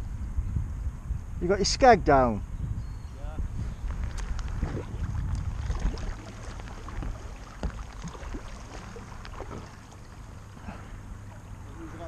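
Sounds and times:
low rumble: 3.4s - 11.9s
water drips: 3.9s - 10.6s
paddle splashing in water: 3.9s - 11.8s.

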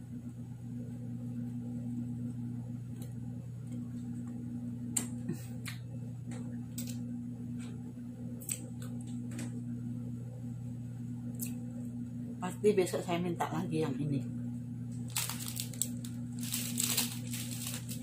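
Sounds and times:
steady low hum: 0.0s - 18.0s
person chewing crunchy biscuit: 15.0s - 18.0s.

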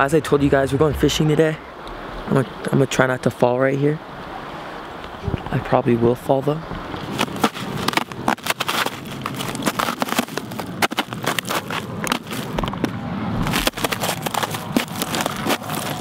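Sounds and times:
footsteps crunching on icy snow: 7.0s - 16.0s.

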